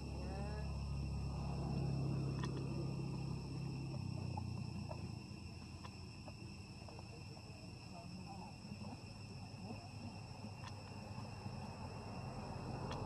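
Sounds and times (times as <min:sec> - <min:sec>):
low rumble: 0:00.0 - 0:07.4
insects droning: 0:00.0 - 0:13.0
faint clicks: 0:01.7 - 0:03.2, 0:09.7 - 0:11.7, 0:12.8 - 0:13.0.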